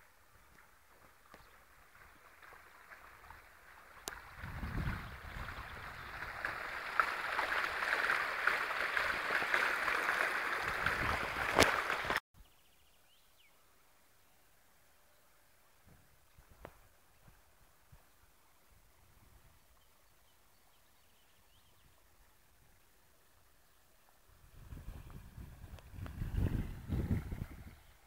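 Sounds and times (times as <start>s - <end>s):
fountain water splashing: 0.0s - 12.2s.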